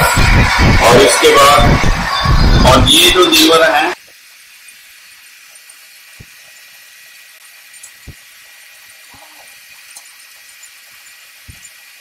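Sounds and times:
machinery whine: 0.0s - 4.0s.

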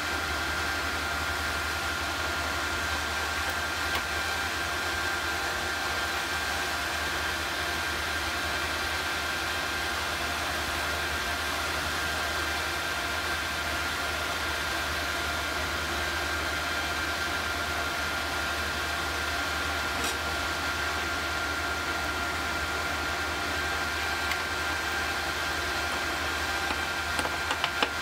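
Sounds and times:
induction heater hissing: 18.0s - 28.0s.

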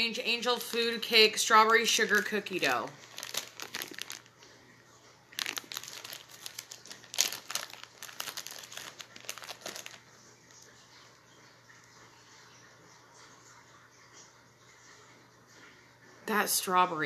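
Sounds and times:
packaging crinkling: 0.6s - 4.4s, 5.3s - 10.7s.

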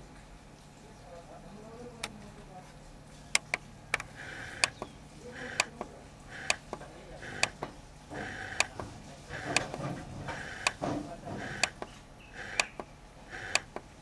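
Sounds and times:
faint radio voices: 0.8s - 13.8s
radio tuning clicks: 3.3s - 14.0s
bursts of radio static: 4.0s - 11.8s, 12.4s - 13.8s.

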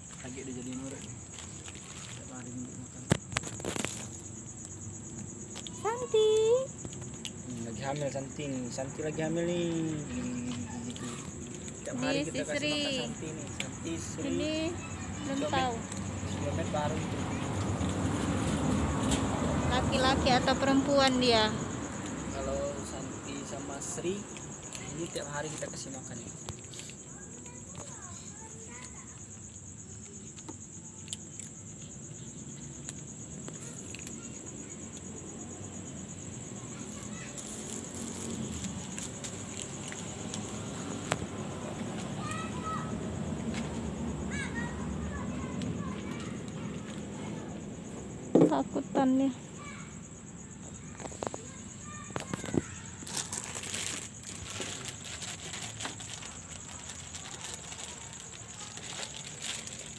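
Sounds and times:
insects trilling: 0.0s - 59.9s
cats crunching dry kibble: 0.1s - 4.4s, 36.9s - 40.6s, 52.2s - 59.9s.

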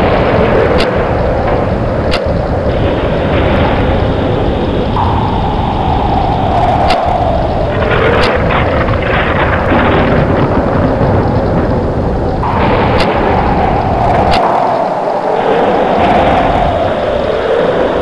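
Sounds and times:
sharp cracks: 0.0s - 18.0s
storm wind gusting: 0.0s - 18.0s
whistling howl of wind: 0.0s - 18.0s.

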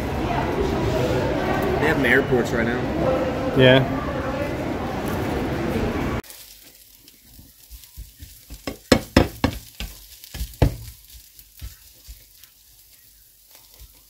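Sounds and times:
onions sizzling: 6.2s - 14.0s
spatula scraping a pan: 6.3s - 14.0s.

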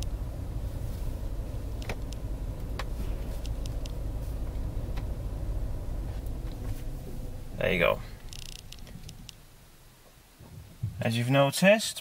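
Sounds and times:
car engine low rumble: 0.0s - 11.2s
faint clicks: 1.7s - 5.1s.

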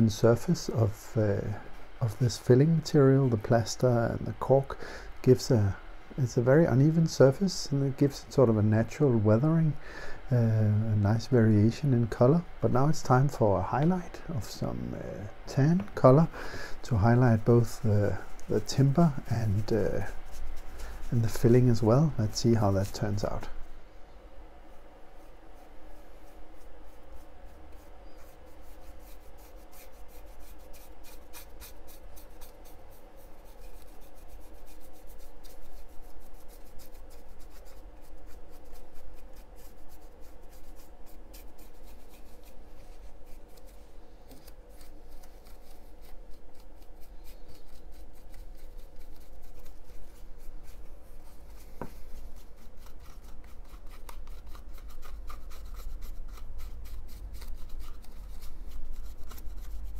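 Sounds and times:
paintbrush scratching rough surface: 16.9s - 23.5s, 24.7s - 59.9s.

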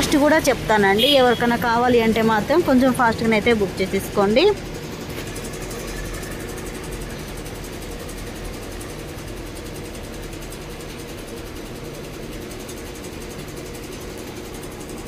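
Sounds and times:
mechanical hum with drone: 0.0s - 15.0s.

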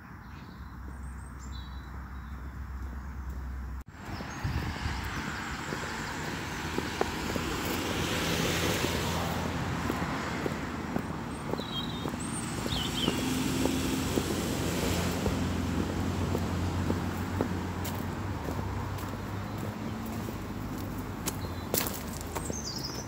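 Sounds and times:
boots stepping on dirt path: 0.8s - 23.0s.

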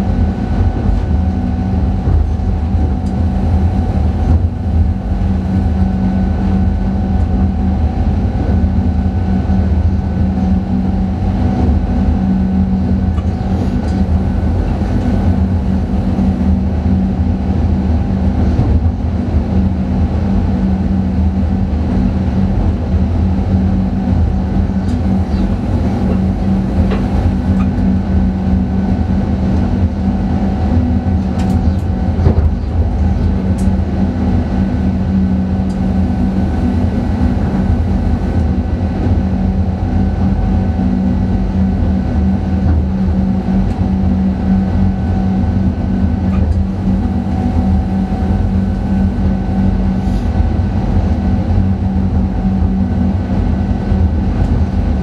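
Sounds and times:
train hum and rumble: 0.0s - 55.0s.

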